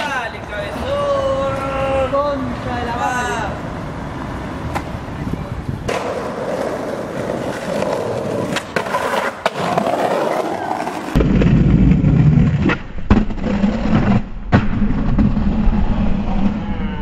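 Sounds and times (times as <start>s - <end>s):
skateboard wheels rolling on concrete: 0.0s - 16.9s
skateboard clacks: 5.8s - 12.0s.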